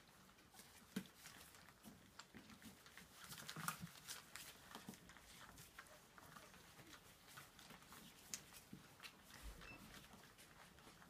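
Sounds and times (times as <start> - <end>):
puppies eating from a dish: 0.0 - 11.0.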